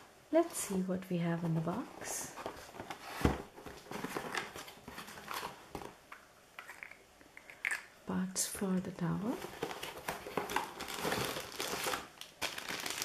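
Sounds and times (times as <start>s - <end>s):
cardboard box being opened: 2.3s - 5.6s, 9.4s - 12.0s.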